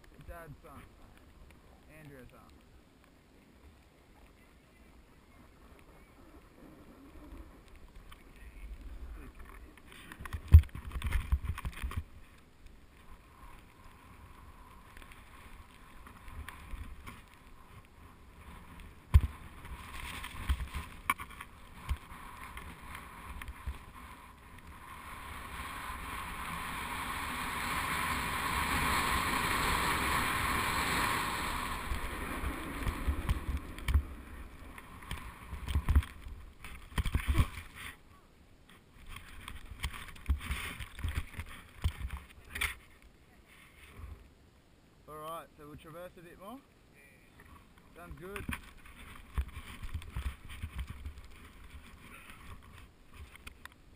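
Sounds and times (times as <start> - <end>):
snowboard hissing over snow: 24.8 - 33.1.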